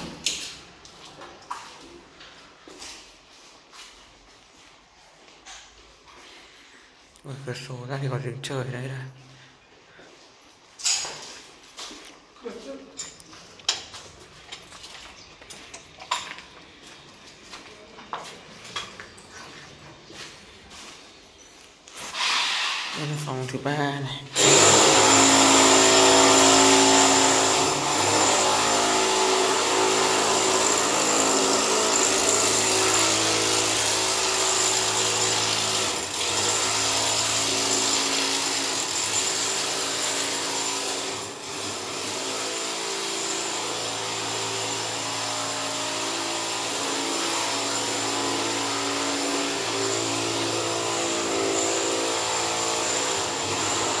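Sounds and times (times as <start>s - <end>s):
power tool running: 24.3s - 54.0s.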